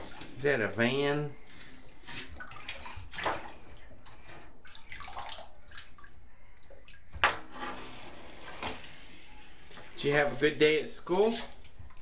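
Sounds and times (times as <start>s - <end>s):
bathwater splashing: 0.0s - 8.7s.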